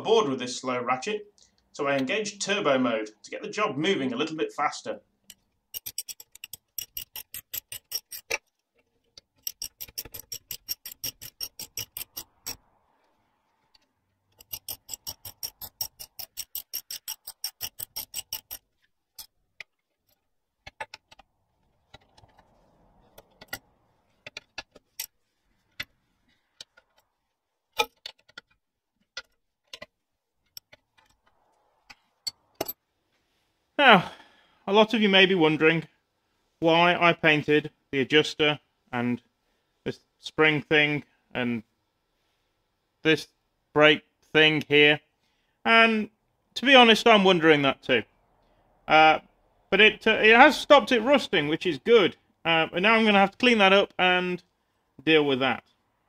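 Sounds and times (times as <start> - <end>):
socket ratchet clicking: 5.2 - 8.4, 9.4 - 12.6, 14.3 - 19.3.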